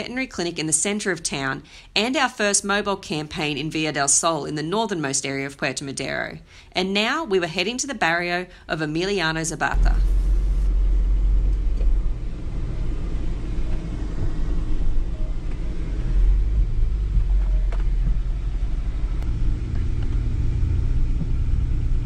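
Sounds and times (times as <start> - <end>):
car engine and tyres rumbling: 9.8 - 22.0.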